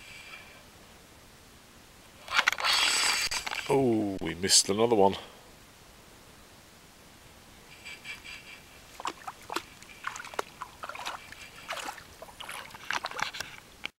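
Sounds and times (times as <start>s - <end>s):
dog splashing in water: 9.0s - 13.5s.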